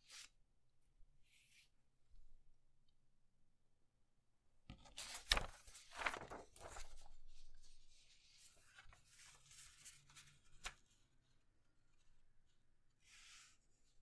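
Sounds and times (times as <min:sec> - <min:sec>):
paper rustling and crackling: 0:04.7 - 0:11.0.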